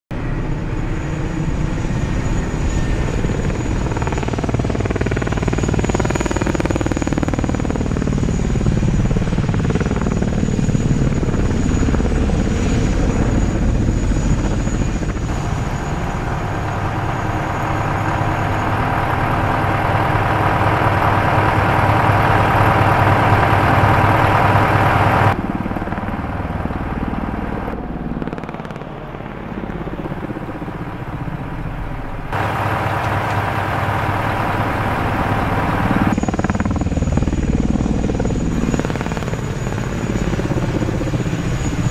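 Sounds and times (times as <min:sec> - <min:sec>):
drone rotor hum: 0:00.2 - 0:41.9
low hum: 0:11.0 - 0:41.9
machine hum with held tones: 0:30.8 - 0:36.7.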